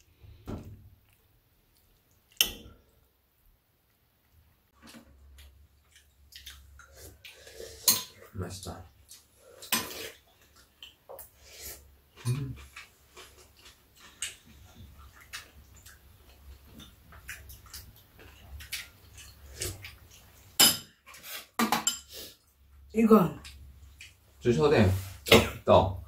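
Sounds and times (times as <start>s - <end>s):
cutlery clinking on ceramic bowls: 20.6s - 21.0s, 21.6s - 22.1s.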